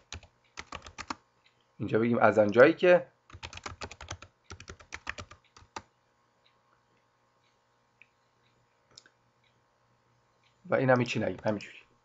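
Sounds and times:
typing on computer keyboard: 0.0s - 1.2s, 3.3s - 5.9s, 10.9s - 11.6s.

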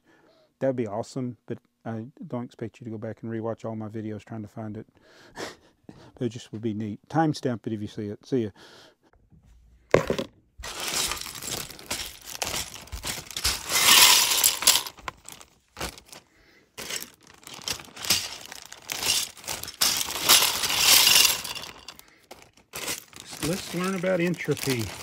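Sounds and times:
plastic bricks clattering into colander: 10.0s - 16.2s, 16.8s - 25.0s
plastic bag crinkling: 10.6s - 25.0s.

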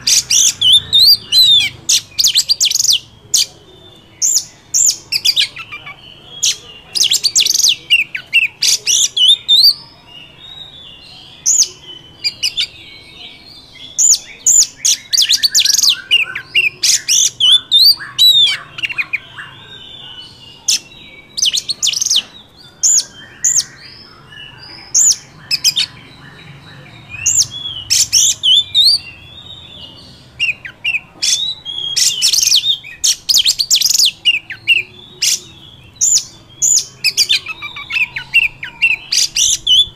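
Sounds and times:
bird whistled song phrases: 10.6s - 39.9s
soft bird chattering: 13.9s - 39.9s.

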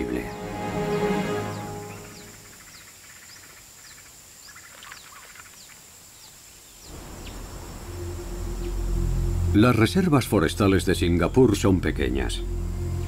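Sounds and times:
high-pitched insect drone: 1.0s - 4.0s, 6.9s - 13.0s
pulsing trill: 7.7s - 11.5s.

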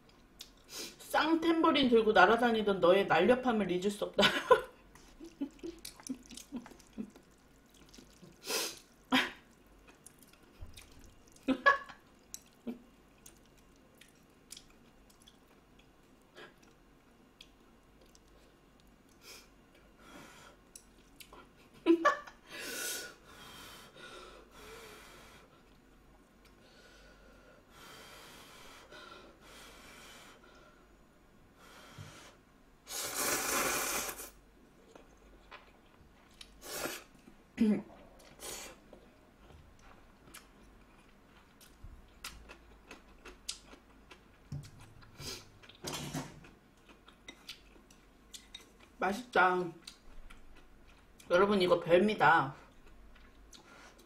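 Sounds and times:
noodle slurping and chewing: 4.9s - 15.9s, 32.9s - 37.3s.

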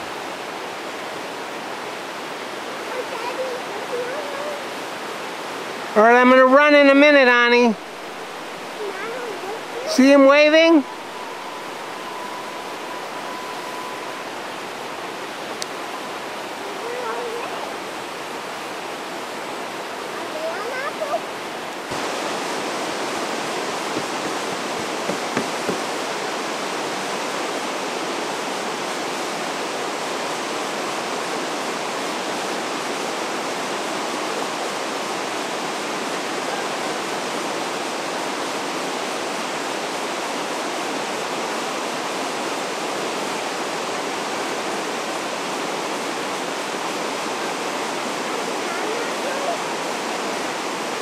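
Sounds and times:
whitewater rapids rushing: 0.0s - 51.0s
brief knocks: 23.9s - 25.9s.

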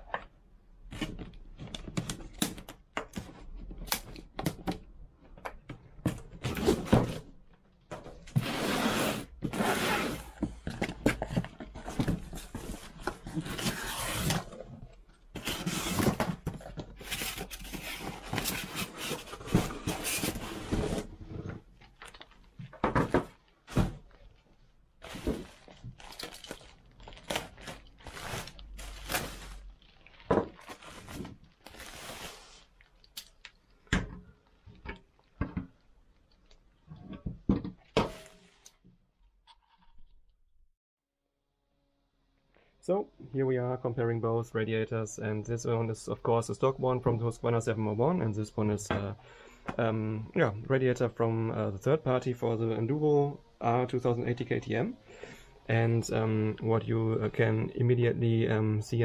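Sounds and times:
bubble wrap rustling: 23.4s - 33.2s.

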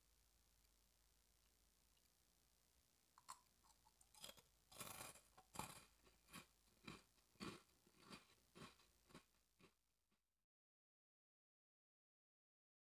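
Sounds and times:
chewing crunchy rice crackers: 3.2s - 9.8s.

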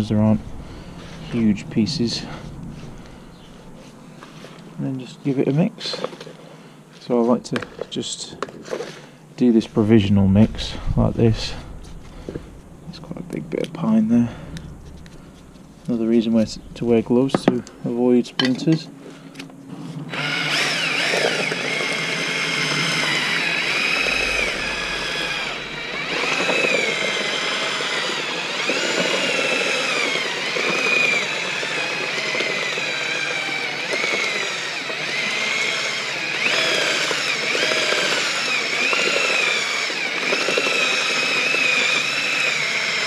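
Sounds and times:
cordless drill mixing pulp: 5.6s - 6.5s, 7.2s - 9.1s, 20.1s - 43.0s.

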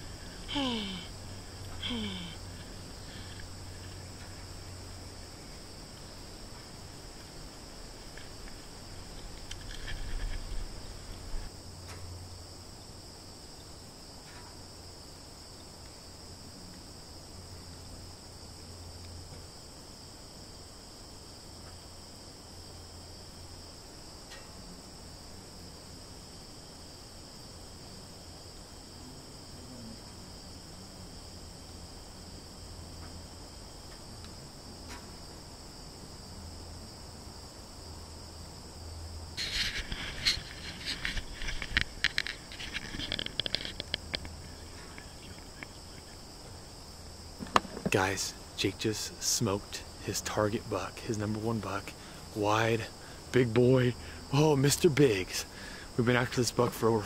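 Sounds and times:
rustles and bumps: 0.0s - 12.2s, 39.3s - 46.1s, 47.3s - 52.8s
crickets chirring: 0.0s - 57.0s.

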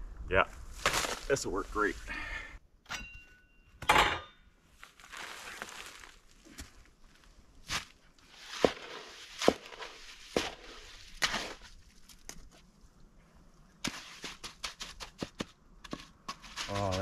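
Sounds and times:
tool scraping wet concrete: 8.3s - 11.7s, 13.8s - 17.0s.

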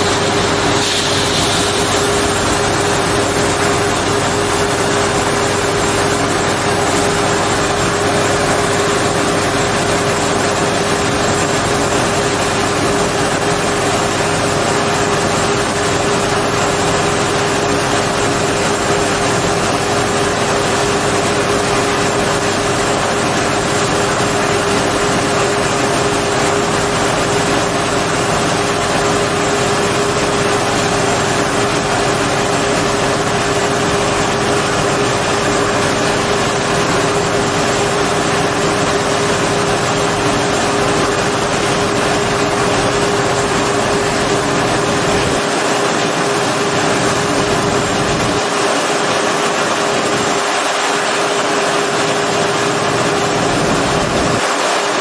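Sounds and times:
grain pouring hiss: 0.0s - 4.8s
combine harvester engine and auger drone: 0.0s - 55.0s.

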